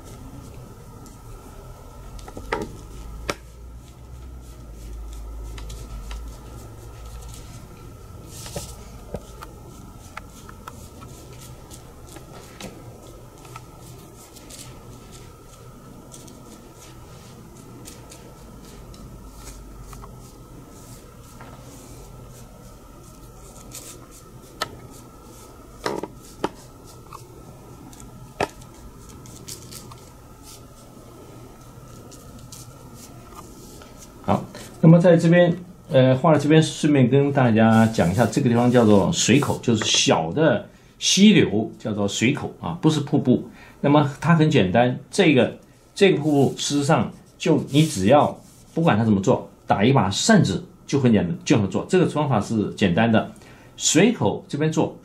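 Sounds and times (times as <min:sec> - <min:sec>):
faint steady hum: 0:00.0 - 0:55.0
ink brush strokes on paper: 0:02.7 - 0:28.0, 0:28.6 - 0:35.0, 0:35.8 - 0:40.1, 0:45.1 - 0:49.5.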